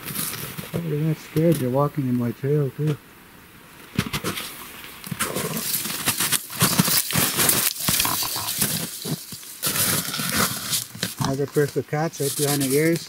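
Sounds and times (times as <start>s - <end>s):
brush and clothing rustling: 4.0s - 13.0s
footsteps crunching through snow: 4.0s - 13.0s.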